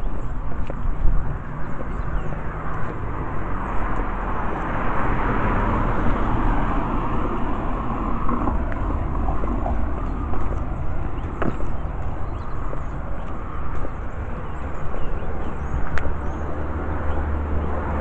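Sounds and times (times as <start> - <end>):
vehicle passing: 0.0 - 18.0
constant low rumble: 6.1 - 17.3.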